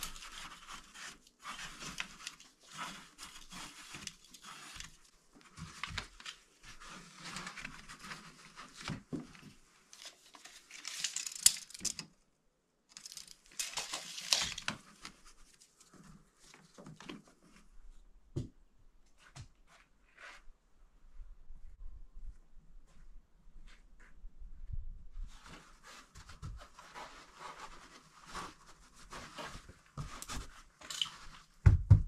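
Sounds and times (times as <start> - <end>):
insulation tearing and rustling: 0.0 - 9.2, 9.8 - 12.0, 12.9 - 17.0.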